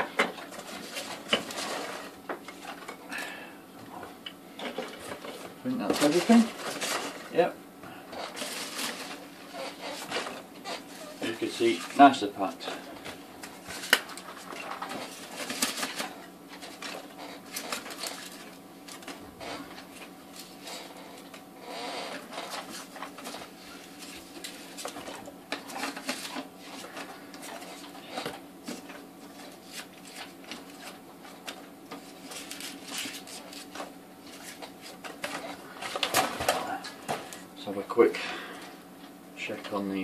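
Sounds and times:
faint steady hum: 0:00.0 - 0:40.0
packing peanuts rustling: 0:13.4 - 0:37.7.

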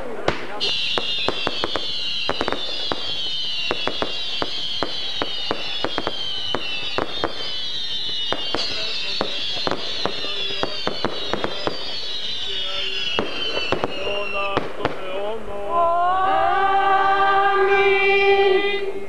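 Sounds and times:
firework cracks and pops: 0:00.0 - 0:15.2
falling firework whistle: 0:00.5 - 0:15.3.

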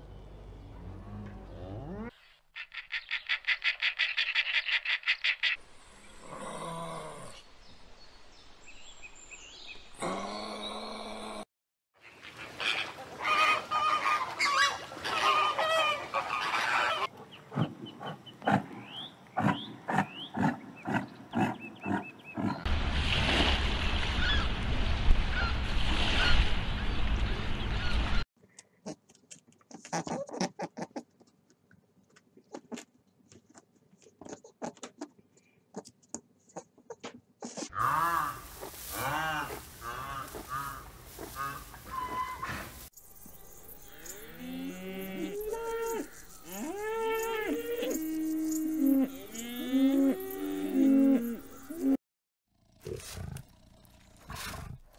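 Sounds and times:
flamingos honking: 0:12.3 - 0:17.1, 0:37.8 - 0:42.6.

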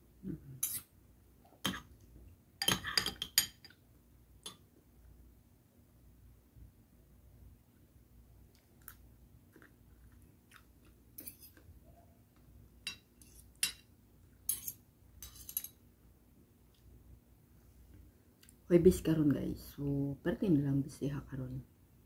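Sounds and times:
person chewing: 0:08.5 - 0:11.7
cutlery clicks: 0:14.5 - 0:15.8.

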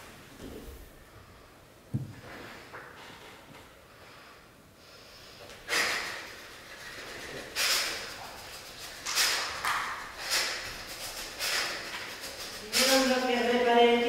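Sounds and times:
loud sharp breaths: 0:03.9 - 0:13.3.

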